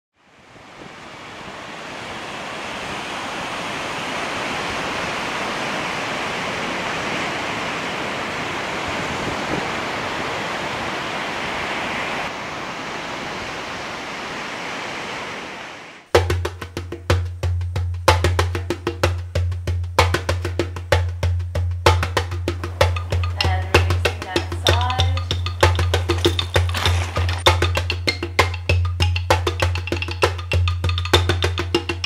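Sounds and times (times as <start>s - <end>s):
ocean waves washing onto beach: 0.2s - 16.1s, 22.2s - 28.1s
percussive music with wood-block beat: 16.1s - 32.0s.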